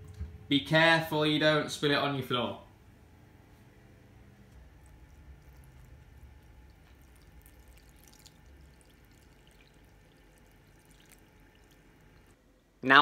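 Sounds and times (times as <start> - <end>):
water trickling onto flour: 4.1 - 12.4.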